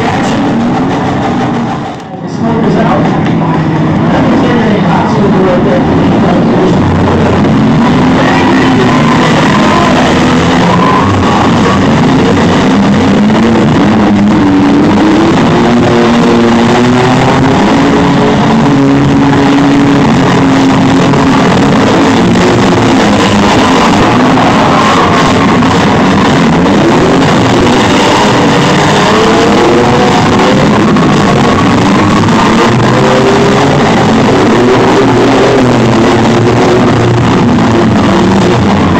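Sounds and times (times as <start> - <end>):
rock music: 0.0 - 38.9
vehicle engines revving: 0.0 - 38.9
vehicles ramming: 0.0 - 38.9.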